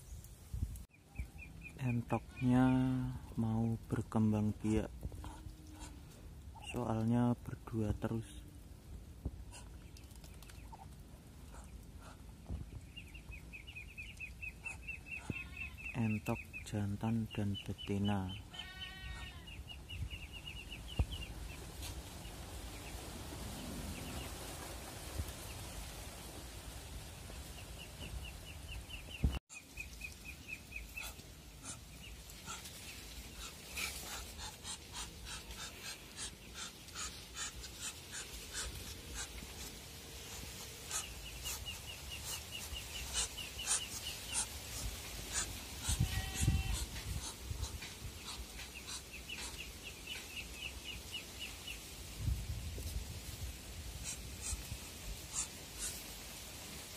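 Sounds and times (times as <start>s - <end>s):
ducks hissing: 30.8s - 50.1s, 53.9s - 56.4s.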